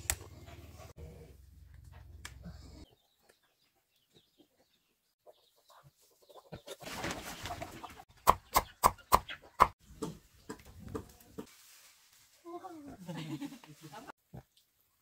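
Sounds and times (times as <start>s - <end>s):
chicken clucking: 2.8s - 11.5s
rustling noise: 11.3s - 12.6s.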